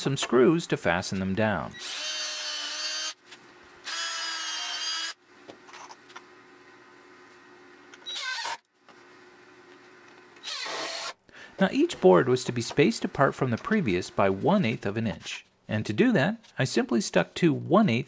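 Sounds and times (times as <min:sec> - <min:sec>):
cordless drill whining: 0:08.0 - 0:08.6, 0:10.4 - 0:11.2.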